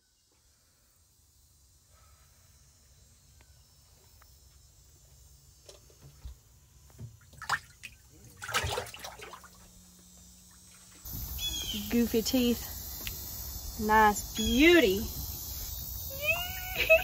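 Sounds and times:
water splashing in fish well: 0:07.2 - 0:09.7.

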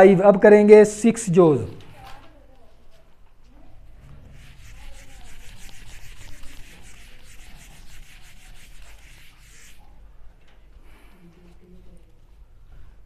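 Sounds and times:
duster scrubbing a whiteboard: 0:04.1 - 0:09.9.

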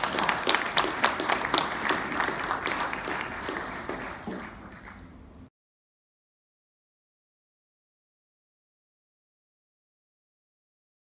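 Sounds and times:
audience applauding: 0:00.0 - 0:05.4.

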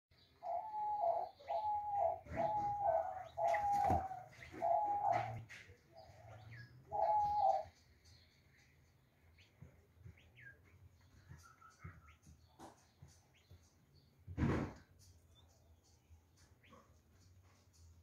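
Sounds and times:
doves cooing: 0:00.4 - 0:07.7.

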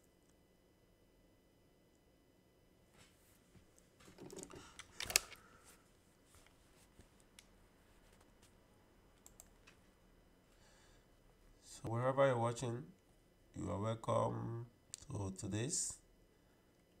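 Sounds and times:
faint clicks: 0:09.2 - 0:09.8.

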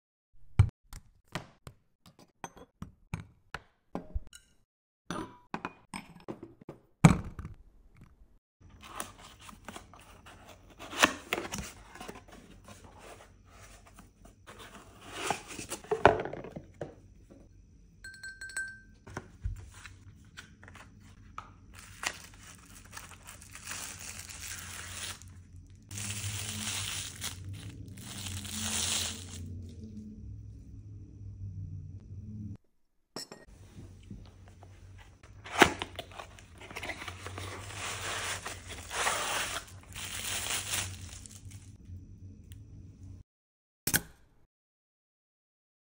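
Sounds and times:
plastic sleeve crinkling: 0:21.7 - 0:29.5, 0:36.0 - 0:41.7
paper rustling: 0:21.8 - 0:29.5, 0:35.4 - 0:41.7.

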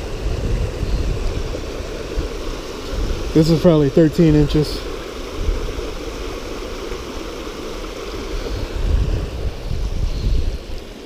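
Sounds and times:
river water rushing over weir: 0:00.0 - 0:11.0
wind buffeting microphone: 0:00.0 - 0:11.0.

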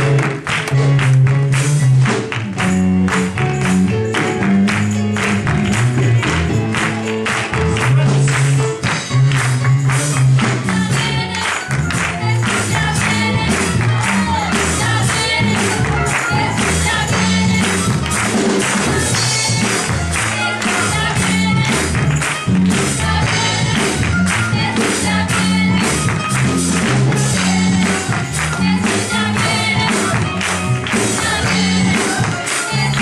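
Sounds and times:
bass line: 0:00.0 - 0:33.0
fast percussion beat: 0:00.0 - 0:33.0
choir singing over a band: 0:10.6 - 0:22.2, 0:22.8 - 0:26.3, 0:27.0 - 0:33.0.

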